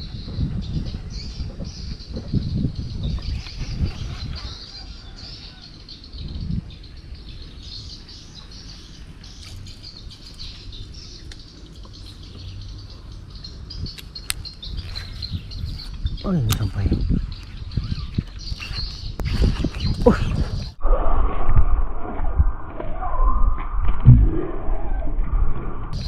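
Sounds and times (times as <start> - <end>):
birds chirping: 0.0 - 20.8
wind rumble on microphone: 0.0 - 26.0.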